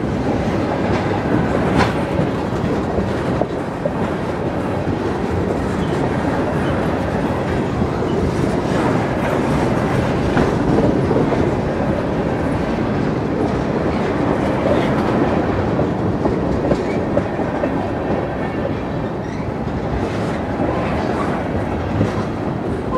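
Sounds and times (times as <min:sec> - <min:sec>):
steel wheels rolling on rails: 0:00.0 - 0:22.9
wheels clacking over rail joints: 0:00.1 - 0:22.9.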